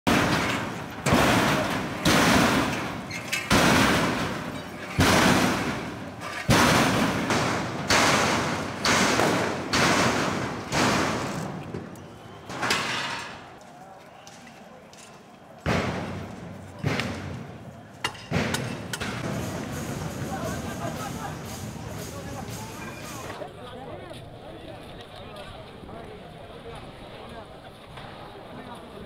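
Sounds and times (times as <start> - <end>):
metal barrier banging: 0.1 - 11.7, 15.7 - 23.4.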